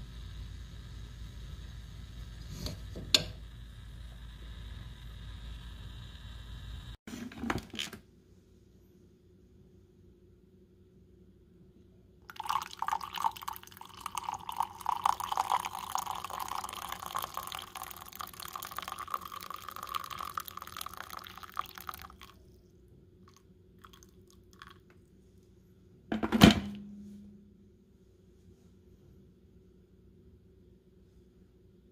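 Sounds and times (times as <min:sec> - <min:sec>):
water pouring into a mug: 0:12.3 - 0:22.6, 0:23.3 - 0:24.9.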